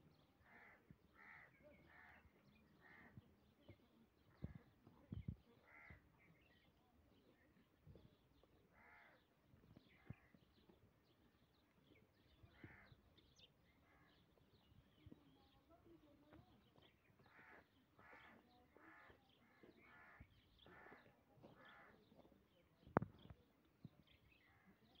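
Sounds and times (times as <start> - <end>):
faint harsh bird calls: 0.4 - 3.2, 4.3 - 6.6, 8.6 - 11.2, 12.2 - 15.6, 16.6 - 22.2.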